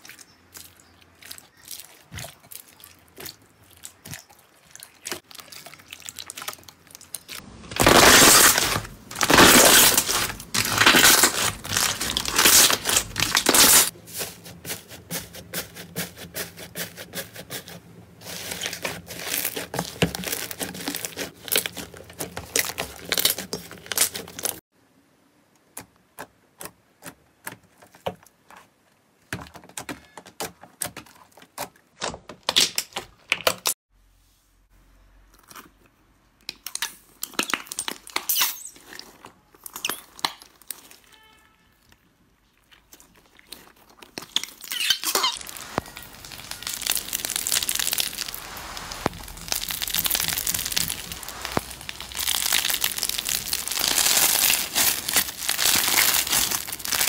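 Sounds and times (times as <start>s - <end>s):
slime crackling and popping: 5.0s - 14.0s, 18.3s - 24.6s, 43.6s - 57.0s.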